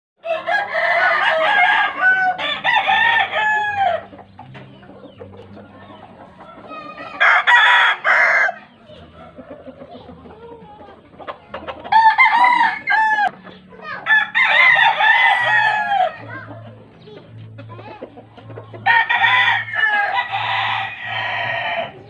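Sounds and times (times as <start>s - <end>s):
roosters crowing: 0.2s - 4.6s, 6.2s - 10.2s, 11.8s - 16.5s, 18.7s - 22.0s.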